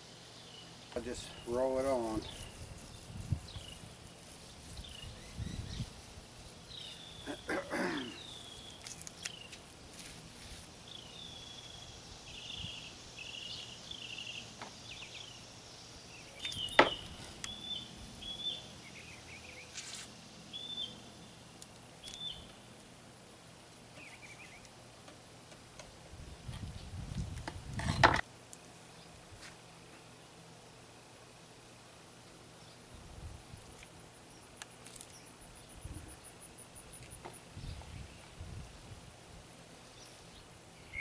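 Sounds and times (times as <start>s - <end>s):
bird singing: 0.4s - 6.0s, 6.7s - 9.6s, 10.9s - 19.8s, 20.5s - 22.7s, 23.9s - 24.7s, 39.8s - 41.0s
knocks and scrapes at workbench: 27.4s - 28.2s.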